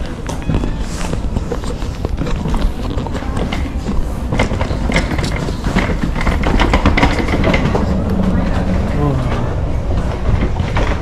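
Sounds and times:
faint voices: 0:00.0 - 0:11.0
footsteps: 0:00.0 - 0:11.0
steady low rumble: 0:00.0 - 0:11.0.

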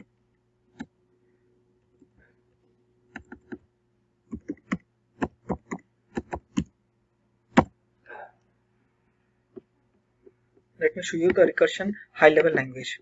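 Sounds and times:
computer keyboard typing: 0:03.1 - 0:03.6, 0:04.3 - 0:06.7.

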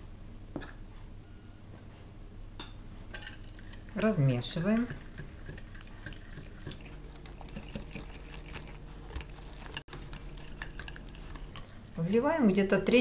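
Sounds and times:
wire whisk scraping glass bowl: 0:03.2 - 0:11.6.

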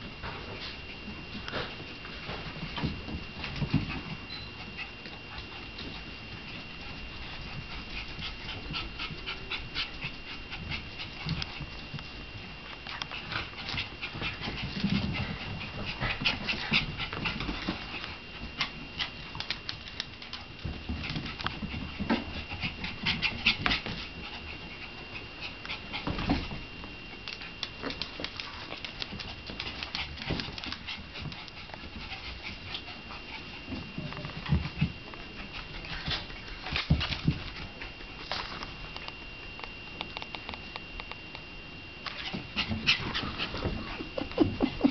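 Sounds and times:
puppy noises: 0:03.4 - 0:11.8, 0:27.1 - 0:38.0, 0:42.0 - 0:44.9.

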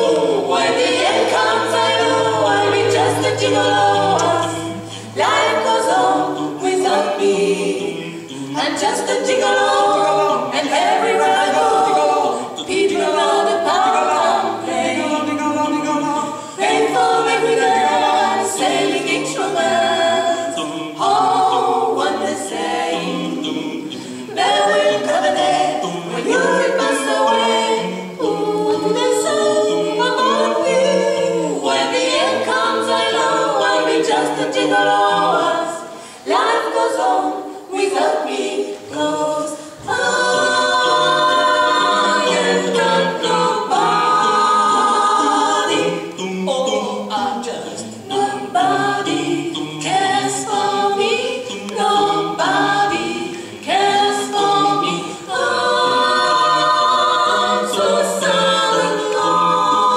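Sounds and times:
vocal quartet singing in harmony: 0:00.0 - 0:59.9.

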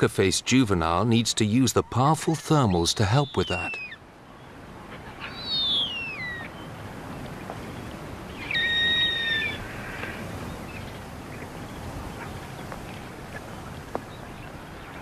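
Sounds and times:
background hiss: 0:00.0 - 0:15.0
whistled bird calls: 0:03.0 - 0:04.0, 0:05.2 - 0:06.8, 0:08.3 - 0:09.6.

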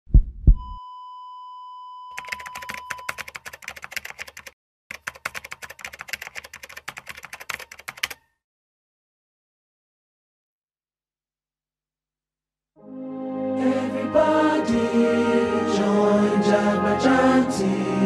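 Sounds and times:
low thumps: 0:00.1 - 0:00.8
computer keyboard typing: 0:02.2 - 0:08.2.

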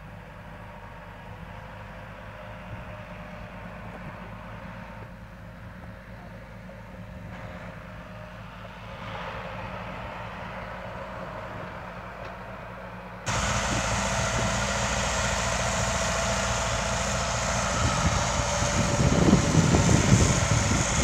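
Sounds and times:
tractor engine under load: 0:10.8 - 0:21.0.

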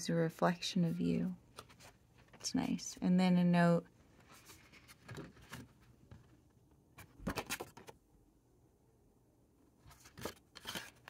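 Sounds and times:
paper rustling: 0:04.2 - 0:06.4, 0:09.8 - 0:11.0.

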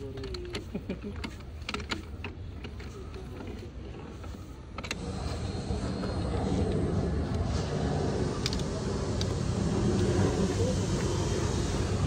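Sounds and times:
steady low rumble: 0:04.9 - 0:12.0.

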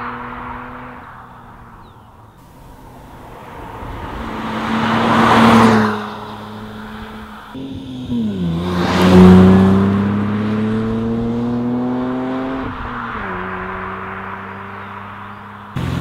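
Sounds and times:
car engine accelerating: 0:00.0 - 0:16.0.

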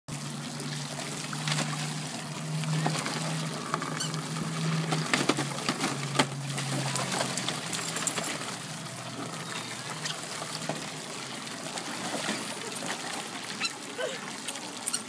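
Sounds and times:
water pouring into pool: 0:00.1 - 0:15.0
puppy splashing: 0:00.6 - 0:11.0.

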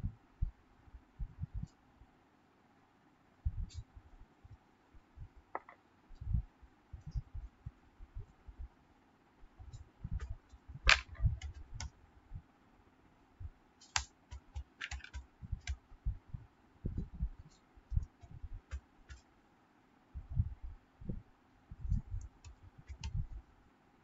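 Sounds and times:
typing on computer keyboard: 0:13.8 - 0:15.8, 0:22.4 - 0:23.2.

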